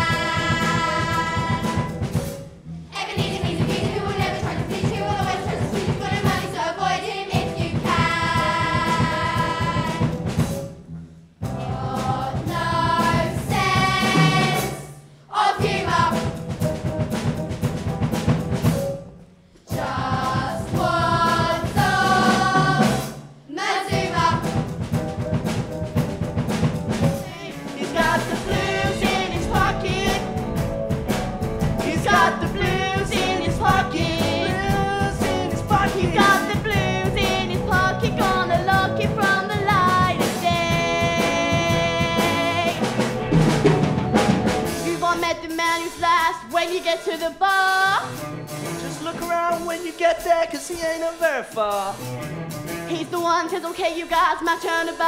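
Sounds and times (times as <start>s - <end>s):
children's chorus singing: 0.0s - 2.0s, 2.9s - 10.1s, 11.6s - 16.2s, 19.7s - 24.5s, 27.2s - 30.6s, 31.8s - 43.0s
musical accompaniment: 0.0s - 55.0s.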